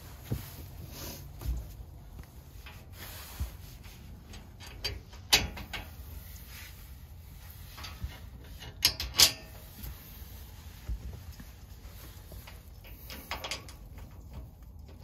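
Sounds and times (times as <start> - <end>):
metal panels knocking and clicking: 4.4 - 5.9, 12.9 - 15.0.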